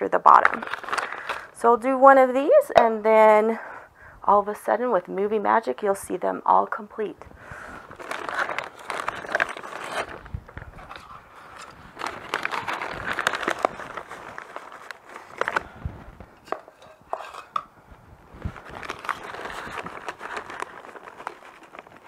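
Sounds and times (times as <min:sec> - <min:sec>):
plastic bag crinkling: 0:00.1 - 0:01.7, 0:07.8 - 0:15.8, 0:18.4 - 0:22.0.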